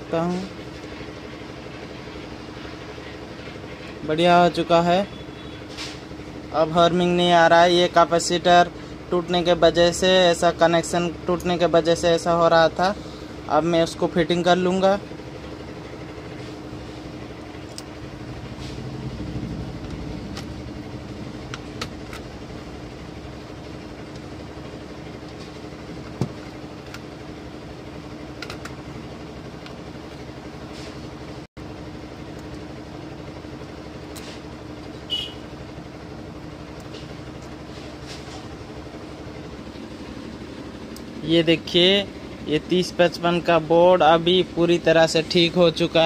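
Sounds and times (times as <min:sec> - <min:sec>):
steady low drone: 0:15.5 - 0:25.2.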